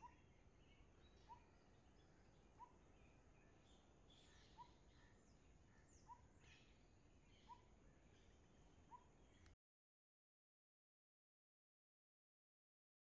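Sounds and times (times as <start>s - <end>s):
birds chirping and twittering: 0.0s - 9.6s.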